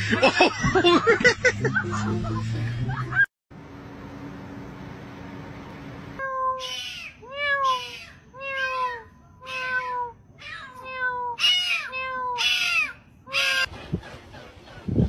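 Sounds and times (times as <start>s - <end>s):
kitten meowing: 6.2s - 13.7s.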